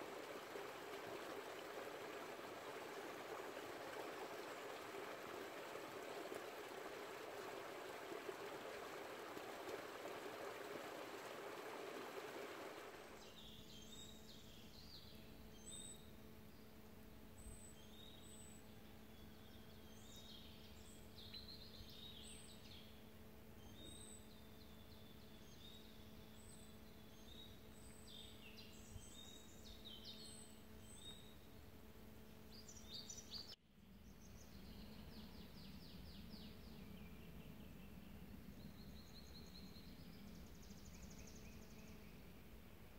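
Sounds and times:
river water flowing: 0.0 - 13.2
faint low hum: 0.0 - 42.9.

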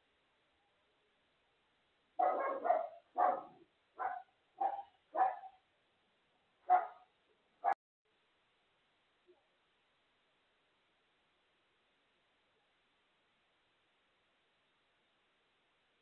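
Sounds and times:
dog barking: 2.2 - 5.6, 6.6 - 7.8.

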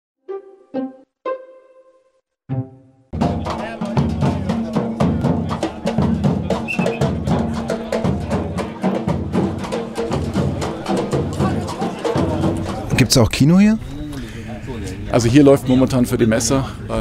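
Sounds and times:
percussion music: 2.5 - 13.5.

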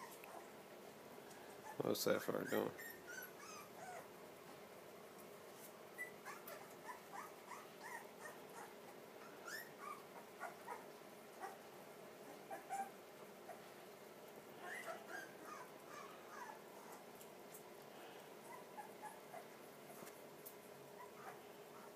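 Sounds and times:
puppies whimpering: 1.5 - 4.2, 5.9 - 11.6, 12.3 - 13.6, 14.6 - 17.1, 18.3 - 20.1, 20.9 - 21.9.

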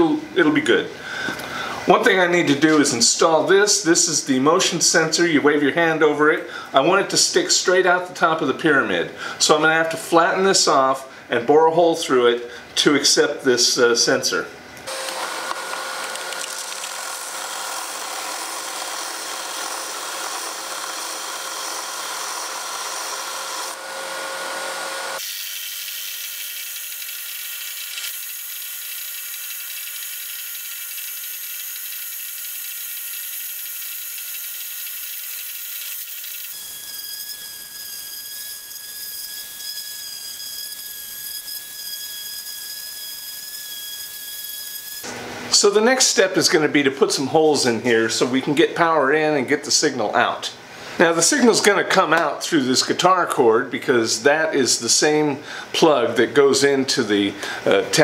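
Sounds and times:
orbital sander on wood: 14.9 - 39.6
drill press boring into wood: 14.9 - 45.2
belt sander grinding wood: 14.9 - 45.7.

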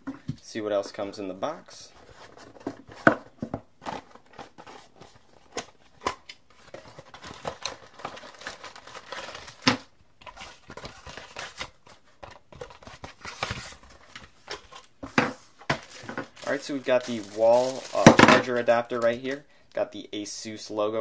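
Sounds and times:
plastic bag crinkling: 6.7 - 9.6, 15.7 - 19.4.

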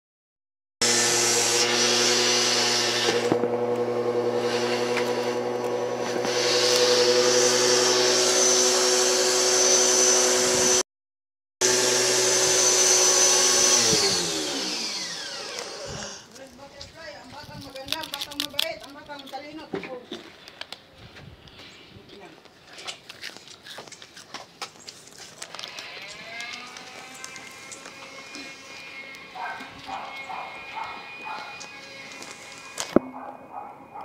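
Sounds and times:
motor winding down: 0.8 - 10.8, 11.6 - 16.3, 25.4 - 33.0
pressure washer motor humming: 0.8 - 10.8, 11.6 - 16.3, 25.8 - 33.1.

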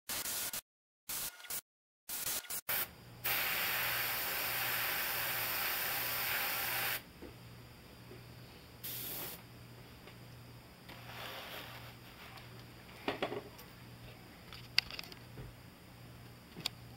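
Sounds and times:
airbrush hissing: 2.2 - 7.0, 8.8 - 9.4.

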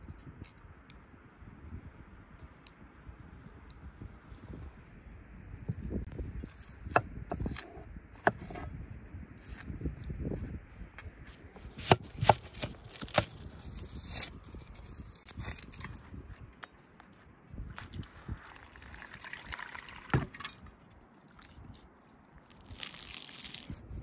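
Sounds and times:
knife cutting through onion: 6.5 - 8.8, 11.6 - 15.8
knife peeling onion skin: 11.6 - 16.1, 22.5 - 24.0.

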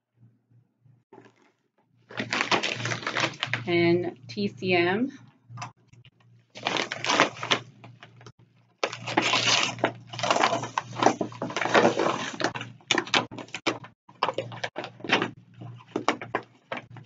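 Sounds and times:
paper rustling and crinkling: 2.1 - 3.7, 6.6 - 8.1, 8.8 - 17.0.

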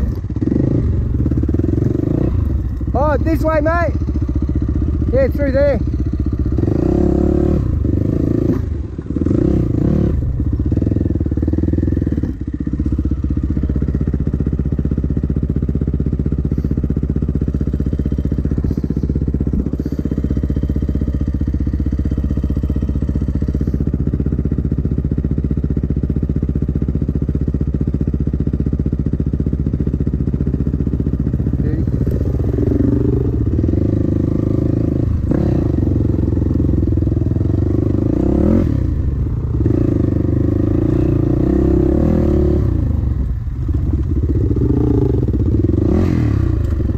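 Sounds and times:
dirt bike engine revving: 0.0 - 14.4, 31.2 - 46.9.

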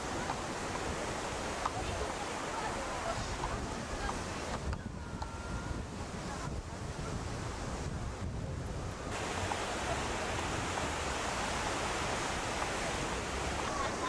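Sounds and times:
surf rushing: 0.0 - 4.7, 5.4 - 14.0
wind buffeting microphone: 0.0 - 14.0.

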